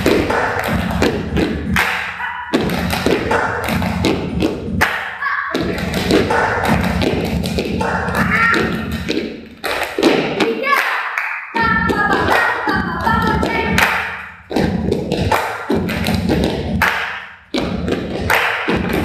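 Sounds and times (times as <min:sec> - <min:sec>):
group body percussion claps: 0:00.0 - 0:19.0.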